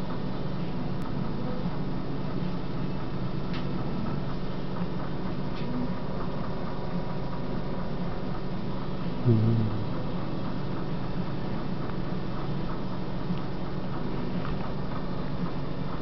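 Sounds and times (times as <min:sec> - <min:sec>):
steady low hum and hiss: 0:00.0 - 0:16.0
short low-pitched sound: 0:09.3 - 0:09.9.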